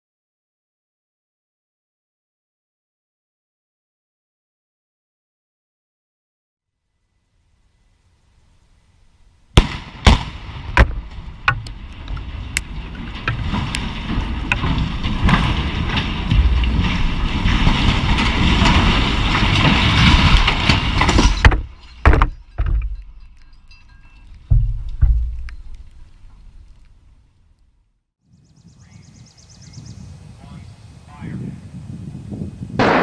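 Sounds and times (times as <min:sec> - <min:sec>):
explosive blasts: 0:09.6 - 0:21.7, 0:32.7 - 0:33.0
sharp bangs: 0:09.6 - 0:23.5, 0:32.8 - 0:33.0
steel structure falling: 0:09.6 - 0:27.3
scattered cracks: 0:09.6 - 0:27.8.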